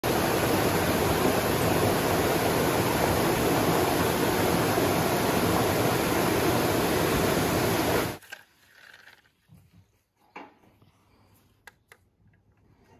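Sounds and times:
waterfall splashing into pool: 0.0 - 8.2.

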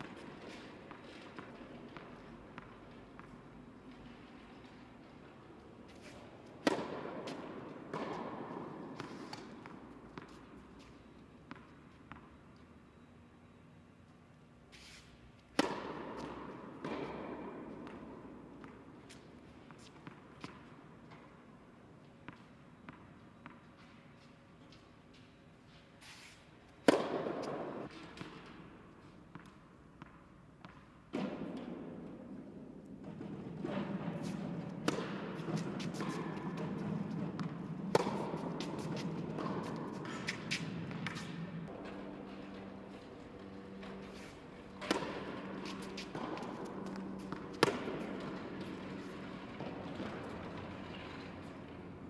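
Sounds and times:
tennis ball bouncing: 0.0 - 12.4, 15.4 - 24.8, 26.8 - 28.6, 29.3 - 52.0
tennis racket hitting ball: 4.0 - 10.8, 15.0 - 21.4, 26.0 - 28.6, 29.3 - 50.8.

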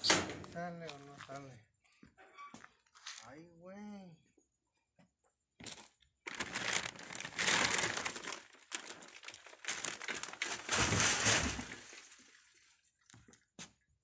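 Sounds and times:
bag crinkling: 6.3 - 12.5.

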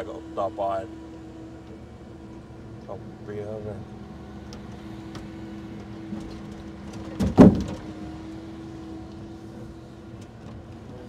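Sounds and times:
crane engine hum: 0.0 - 11.0
heavy wooden thump: 6.2 - 7.9.

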